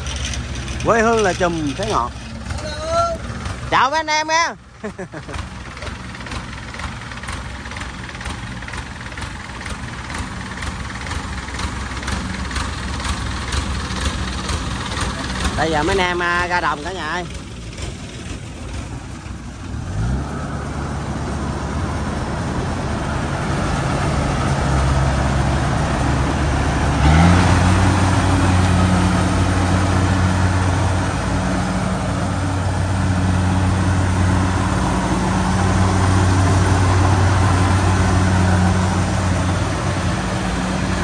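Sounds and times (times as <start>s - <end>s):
engine starting and revving: 24.0s - 41.0s.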